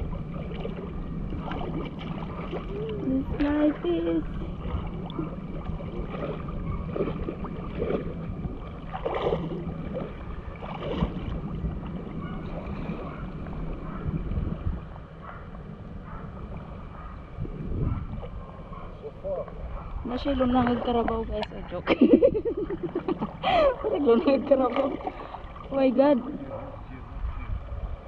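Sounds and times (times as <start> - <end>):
sea water sloshing and splashing: 0.0 - 15.2, 16.3 - 28.0
wind rumble on microphone: 0.0 - 28.0.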